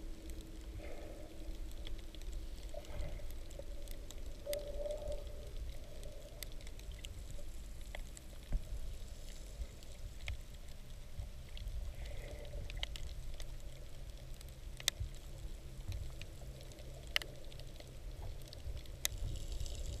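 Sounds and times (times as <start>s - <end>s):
crackling clicks: 0.0s - 20.0s
underwater rumble: 0.0s - 20.0s.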